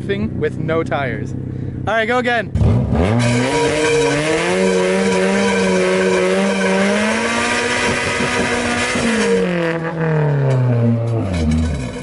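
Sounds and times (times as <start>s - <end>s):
car engine revving hard: 2.5s - 12.0s
metal wheel rim grinding on asphalt: 2.5s - 12.0s.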